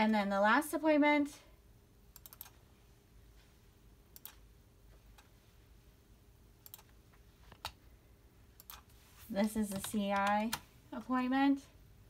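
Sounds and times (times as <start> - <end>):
computer mouse clicks: 2.1 - 2.6, 4.1 - 4.4, 6.6 - 7.8, 8.6 - 10.6.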